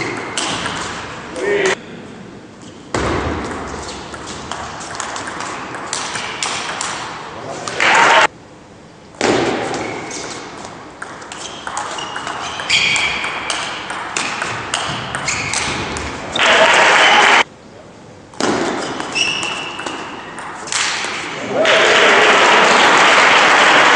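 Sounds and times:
shoes squeaking on floor: 0:11.4 - 0:13.4, 0:14.9 - 0:16.4, 0:18.8 - 0:20.4.

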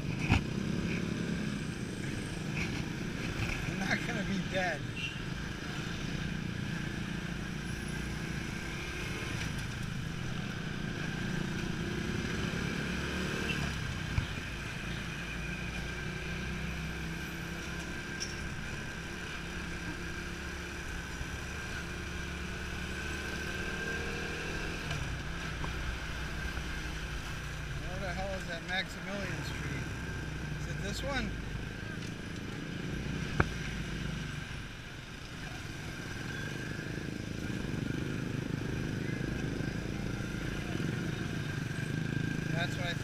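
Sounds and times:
road and wind noise: 0:00.0 - 0:43.0
motorcycle engine running: 0:05.0 - 0:43.0.

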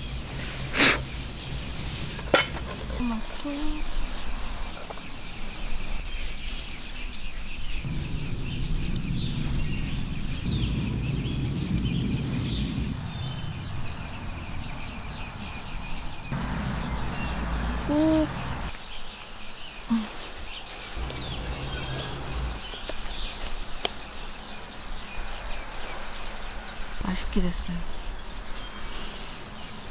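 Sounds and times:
birds chirping and singing: 0:00.0 - 0:28.8
high insect hum: 0:03.0 - 0:27.1
low rumbling noise: 0:07.9 - 0:18.7, 0:21.0 - 0:22.8
loud pitched bird call: 0:16.3 - 0:18.8, 0:21.0 - 0:22.9.

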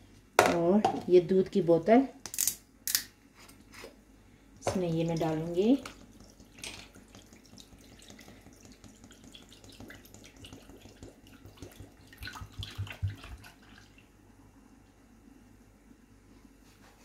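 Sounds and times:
milk pouring into a bowl: 0:05.0 - 0:14.2.

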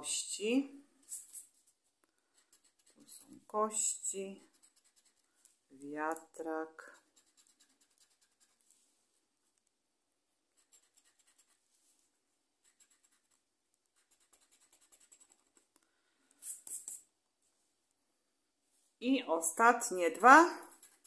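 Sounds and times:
scraper scratching scratch card: 0:01.0 - 0:01.5, 0:02.4 - 0:03.3, 0:04.4 - 0:05.2, 0:06.9 - 0:08.6, 0:10.6 - 0:11.6, 0:12.6 - 0:13.4, 0:14.0 - 0:15.6, 0:16.4 - 0:17.0, 0:20.3 - 0:21.0.

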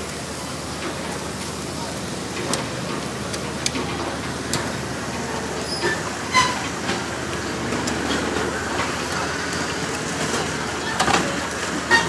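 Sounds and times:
meat sizzling on a grill: 0:00.0 - 0:12.0
metal tongs clicking on grate: 0:02.4 - 0:04.7.

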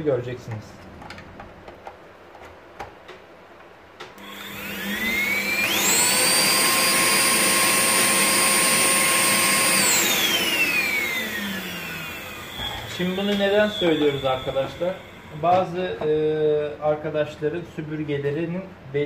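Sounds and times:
vacuum cleaner motor whine: 0:04.1 - 0:16.1.

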